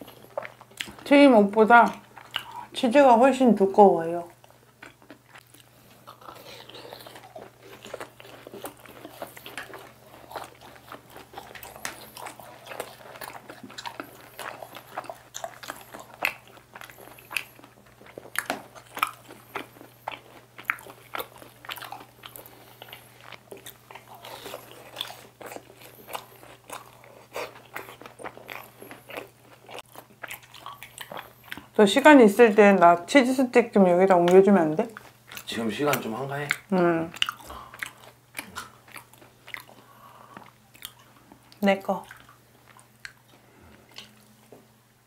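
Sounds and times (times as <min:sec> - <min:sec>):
crunchy food being chewed: 0:00.0 - 0:01.1, 0:01.8 - 0:02.8, 0:04.3 - 0:31.8, 0:34.8 - 0:44.7.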